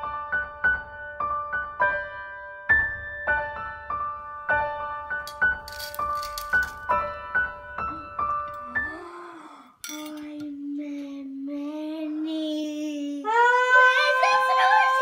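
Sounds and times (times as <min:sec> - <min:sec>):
slow piano notes: 0:00.0 - 0:12.0
child singing long note: 0:12.9 - 0:15.0.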